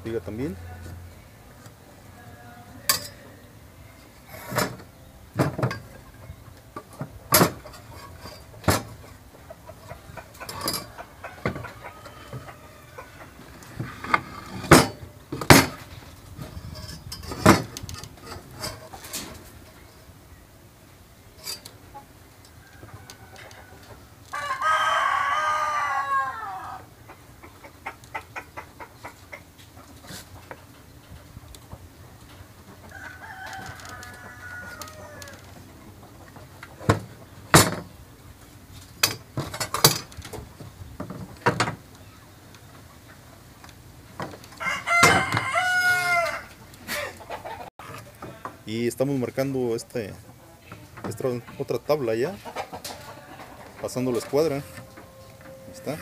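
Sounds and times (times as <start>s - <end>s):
rooster crowing: 10.6s - 13.8s, 22.5s - 27.0s, 32.9s - 35.6s, 44.5s - 47.6s
knocks of boards on workbench: 13.8s - 15.8s, 36.8s - 37.9s.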